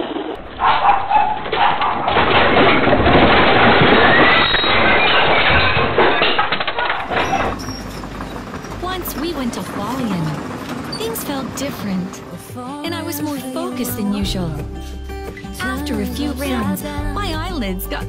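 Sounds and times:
objects rattling and crashing: 0.0 - 12.5.

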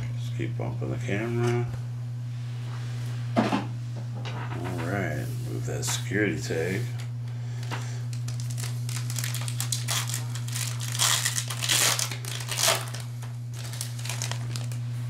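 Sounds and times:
low hum: 0.0 - 15.0
foil wrappers crinkling: 7.6 - 15.0.

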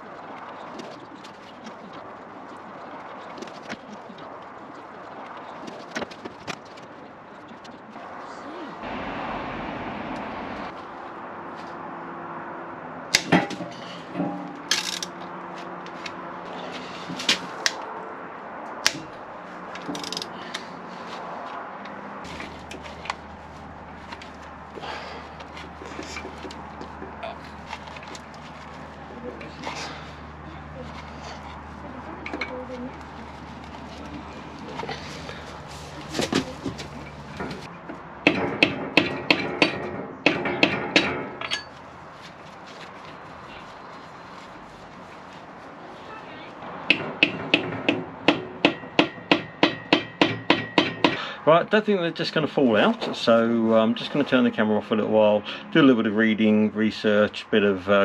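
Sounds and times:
hammer striking metal: 38.2 - 41.7, 46.9 - 51.2
metal tool clinking on engine: 40.5 - 41.8.

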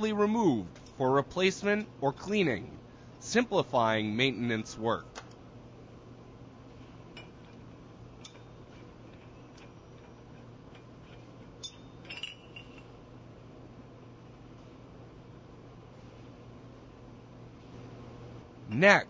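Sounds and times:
steady low hum: 0.0 - 19.0
metal parts clicking and clinking: 9.1 - 12.9
metal on metal ring: 11.0 - 13.0.

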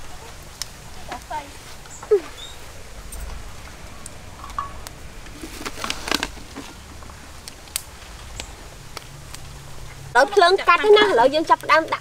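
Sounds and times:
twig fire crackling: 0.0 - 12.0
sticks snapping: 7.4 - 9.5.

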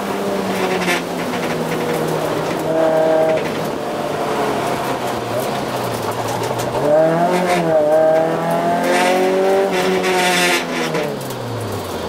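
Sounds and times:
car engine at high revs: 0.0 - 12.0.

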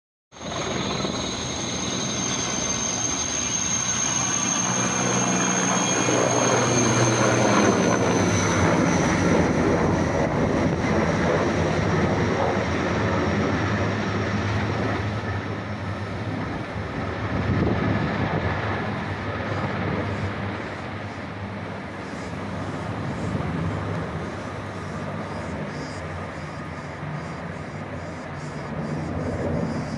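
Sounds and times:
helicopter turbine whine: 0.3 - 29.9
low rotor drone: 0.3 - 29.9.

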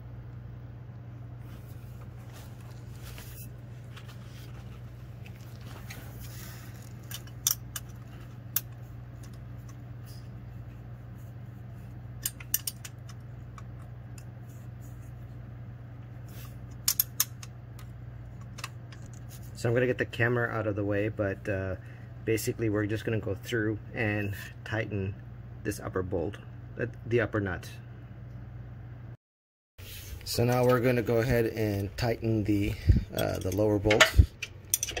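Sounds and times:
low hum: 0.0 - 27.1.

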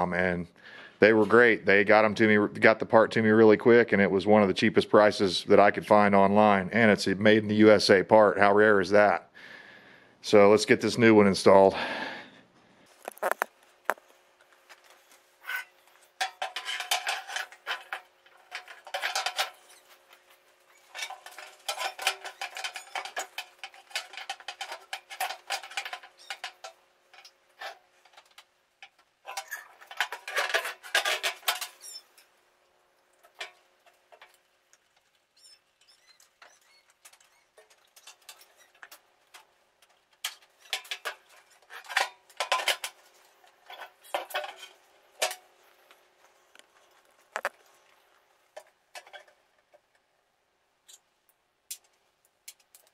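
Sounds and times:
metal blades clattering and scraping: 14.9 - 28.3, 29.2 - 32.3, 40.2 - 45.4.

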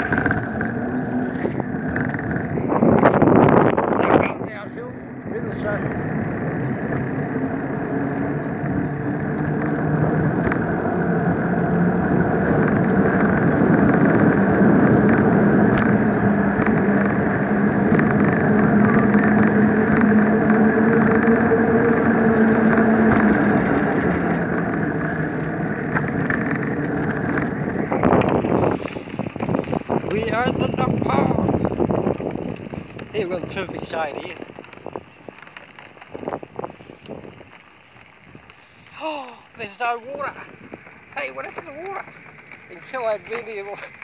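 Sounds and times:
low hum: 0.0 - 33.7
wind on microphone: 0.0 - 37.5
bicycle rolling noise: 0.0 - 44.0.

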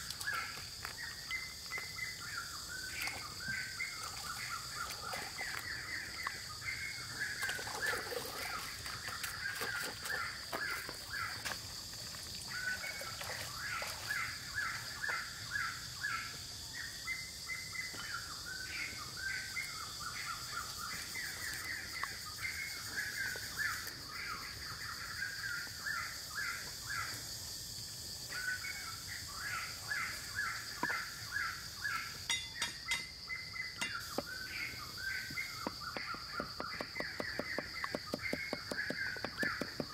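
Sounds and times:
birds chirping: 12.4 - 39.9
cleaver chopping on wooden block: 35.6 - 39.9.

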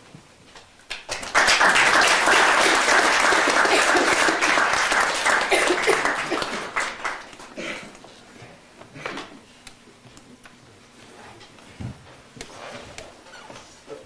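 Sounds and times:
audience applauding: 0.9 - 7.6.

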